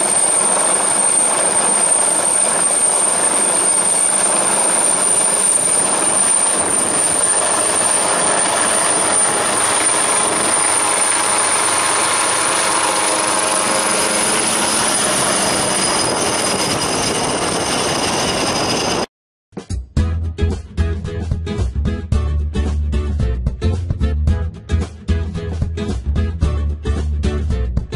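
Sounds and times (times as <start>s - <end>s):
helicopter rotor and engine noise: 0.0s - 19.1s
high turbine whine: 0.0s - 19.1s.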